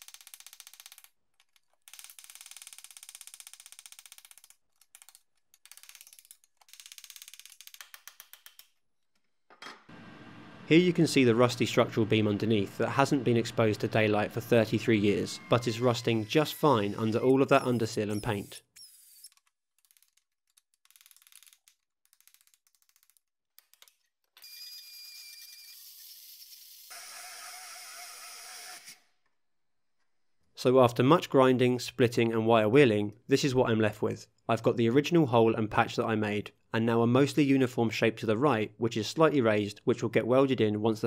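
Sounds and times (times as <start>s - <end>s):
belt sander hissing and whining: 9.9s - 19.2s.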